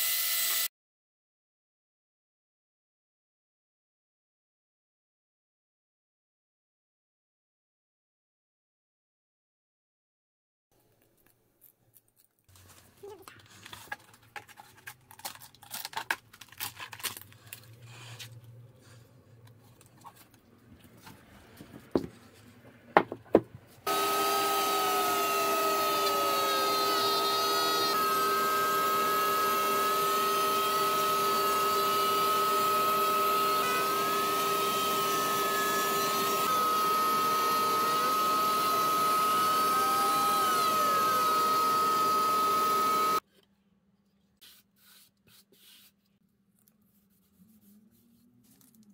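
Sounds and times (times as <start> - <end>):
trim router whining: 23.8 - 43.2.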